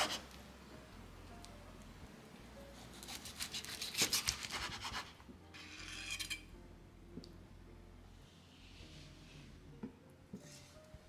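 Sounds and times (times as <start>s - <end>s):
knife cutting crispy chicken: 2.9s - 5.1s
knife scraping cutting board: 2.9s - 6.4s.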